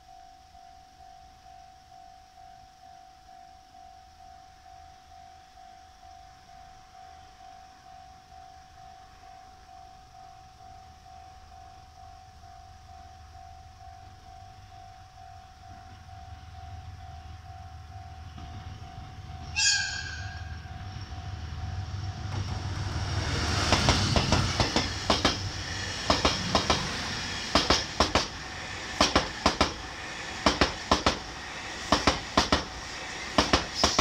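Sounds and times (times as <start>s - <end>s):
level crossing warning tone: 0.0s - 34.0s
diesel locomotive rumble: 14.1s - 34.0s
train horn blast: 19.4s - 21.1s
wheels knocking over rail joints: 23.7s - 28.4s, 29.0s - 31.3s, 31.9s - 34.0s.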